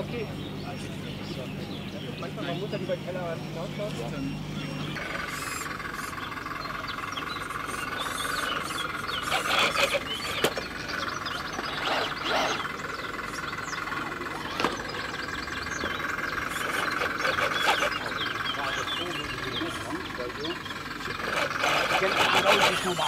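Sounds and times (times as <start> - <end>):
electric motor whining: 2.2 - 23.0
tyres scrabbling on stone: 16.5 - 18.2, 21.1 - 23.0.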